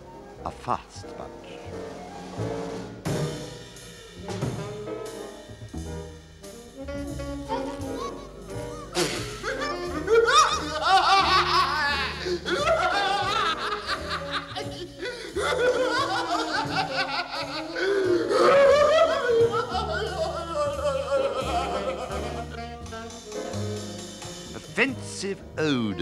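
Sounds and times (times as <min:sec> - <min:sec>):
background music with bass: 0:00.0 - 0:26.0
man cackling cartoon laughter: 0:07.8 - 0:22.6.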